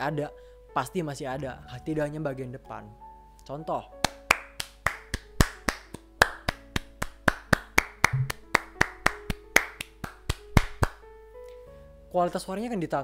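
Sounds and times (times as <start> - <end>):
background music: 0.0 - 13.0
hand claps: 4.0 - 11.0.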